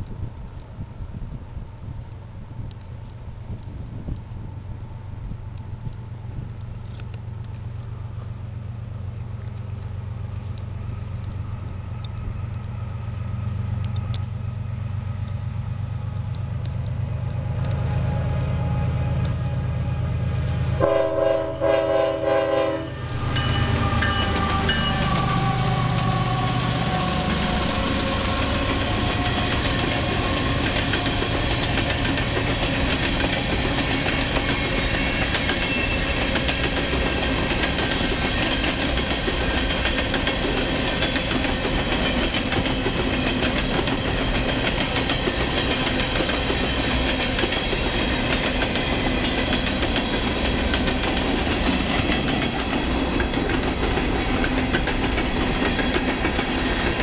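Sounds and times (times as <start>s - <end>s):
diesel locomotive engine drone: 0.0s - 57.0s
locomotive air horn blasts: 18.0s - 29.3s
freight cars clickety-clack: 21.5s - 57.0s.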